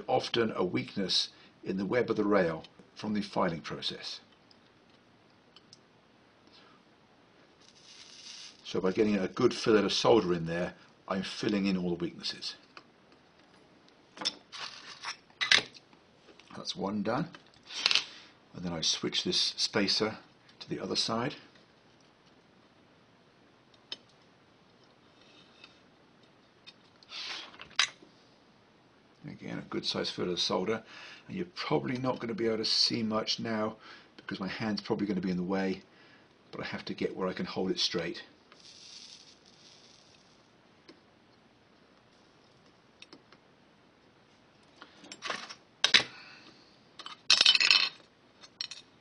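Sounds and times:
scratchy rustle: 0:07.6 - 0:08.7, 0:38.6 - 0:40.4
soft scrape: 0:07.6 - 0:08.7.

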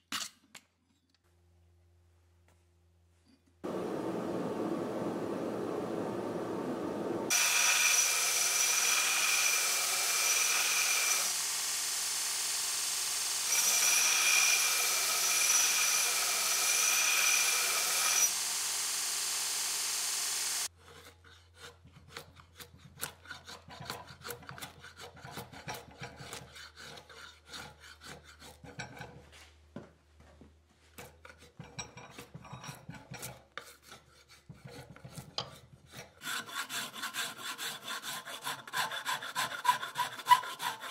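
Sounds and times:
power grinder whining: 0:03.7 - 0:20.7.

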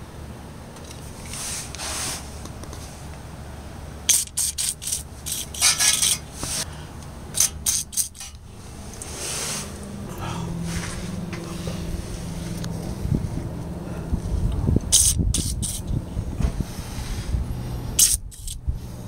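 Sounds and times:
aerosol can spraying: 0:14.9 - 0:15.8.

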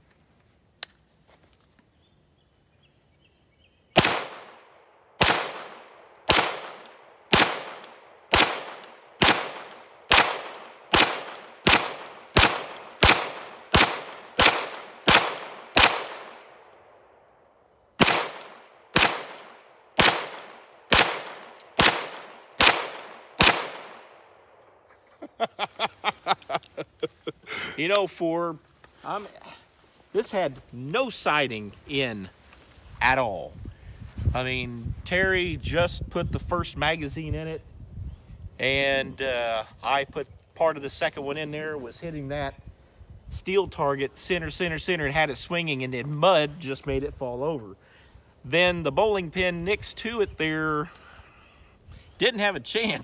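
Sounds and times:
pistol shots echoing: 0:04.0 - 0:16.7, 0:18.0 - 0:24.2.

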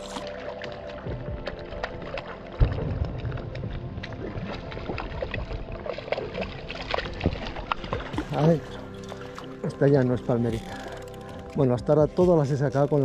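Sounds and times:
river water splashing: 0:00.0 - 0:13.0.

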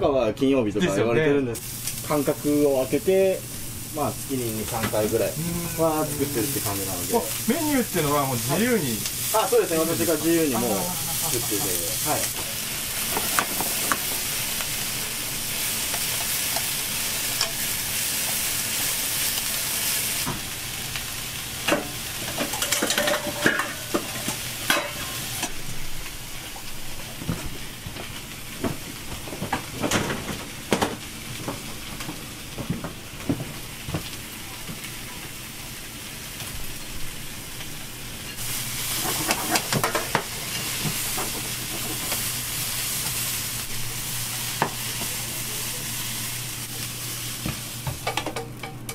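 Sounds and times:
vegetables sizzling in a frying pan: 0:01.2 - 0:48.9.

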